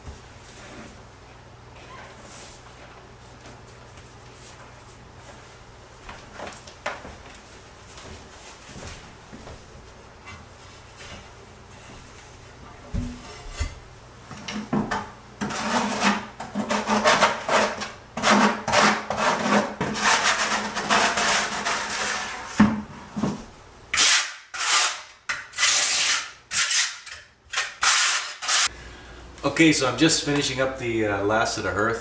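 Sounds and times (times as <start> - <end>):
trowel scraping mortar: 15.4 - 22.6, 24.0 - 28.7.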